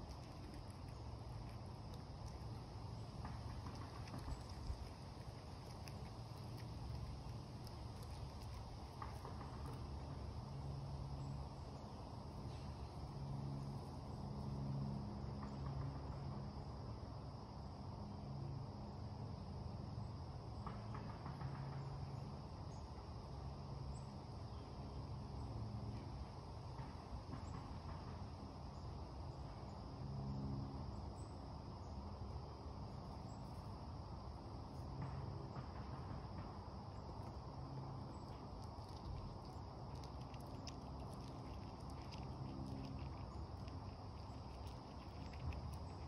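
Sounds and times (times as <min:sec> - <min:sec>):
chipmunk cracking seeds: 0:00.0 - 0:14.6, 0:33.2 - 0:46.0
low steady hum: 0:00.0 - 0:20.9, 0:21.8 - 0:46.0
insect chorus: 0:00.0 - 0:46.0.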